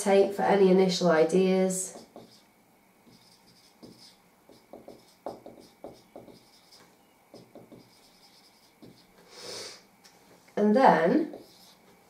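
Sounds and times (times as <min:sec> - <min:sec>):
marker squeaking on whiteboard: 0:01.9 - 0:02.5, 0:03.1 - 0:09.1, 0:11.3 - 0:11.8
brief hiss: 0:09.2 - 0:09.8.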